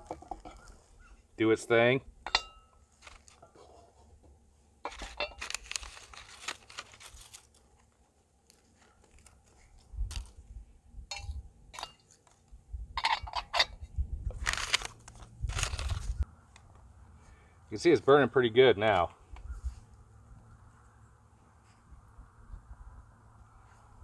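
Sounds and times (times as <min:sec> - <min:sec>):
paper wrapper tearing and rustling: 0:04.9 - 0:07.9, 0:08.5 - 0:10.4, 0:14.3 - 0:16.2.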